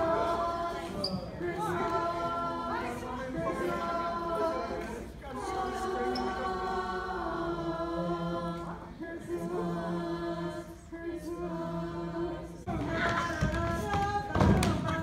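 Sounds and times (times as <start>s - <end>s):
choir singing a cappella: 0.0s - 15.0s.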